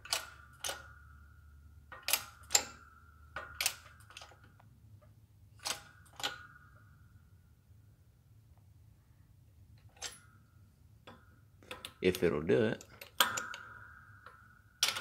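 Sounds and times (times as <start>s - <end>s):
sharp metal clicks with ring: 0.0s - 4.7s, 5.6s - 6.9s, 11.1s - 15.0s.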